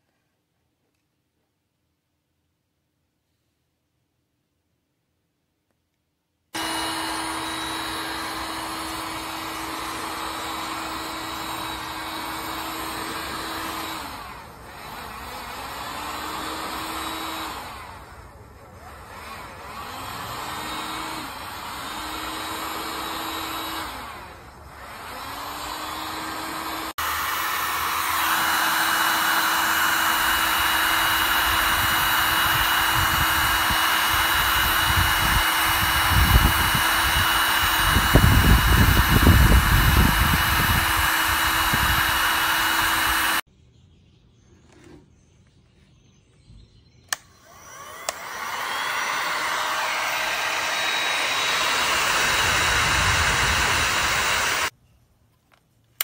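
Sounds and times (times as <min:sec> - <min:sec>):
heat gun blowing hot air: 0:06.6 - 0:18.1, 0:19.0 - 0:43.5, 0:47.1 - 0:54.7.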